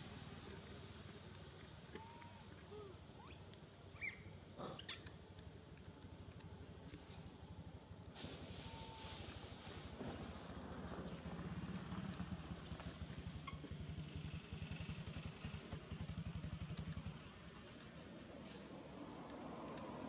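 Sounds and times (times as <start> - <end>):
high-pitched insect chorus: 0.0 - 20.0
low engine hum: 8.3 - 20.0.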